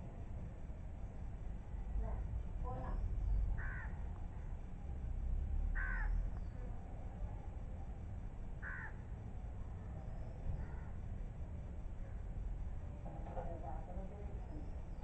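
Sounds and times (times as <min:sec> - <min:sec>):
low steady rumble: 0:00.0 - 0:15.0
crow cawing: 0:03.6 - 0:04.0, 0:05.8 - 0:06.2, 0:08.6 - 0:09.0, 0:10.6 - 0:11.0.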